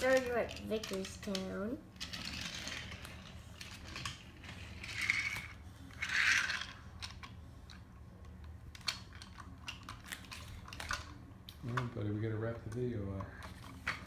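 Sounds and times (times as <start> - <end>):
wooden toy trains clacking: 0.0 - 7.3.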